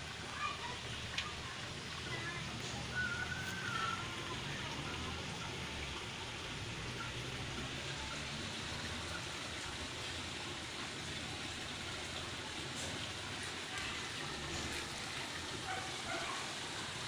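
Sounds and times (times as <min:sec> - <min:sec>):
outdoor background hiss: 0:00.0 - 0:17.0
high wavering whistle: 0:02.9 - 0:04.2.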